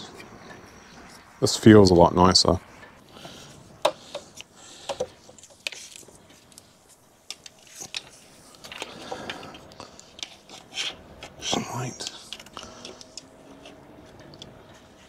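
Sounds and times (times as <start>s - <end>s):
handling rustle: 4.2s - 15.0s.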